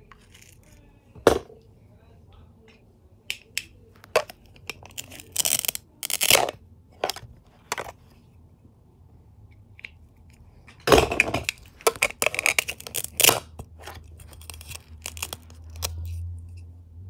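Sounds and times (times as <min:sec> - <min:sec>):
velcro ripping apart: 0:12.0 - 0:13.4, 0:14.2 - 0:16.1.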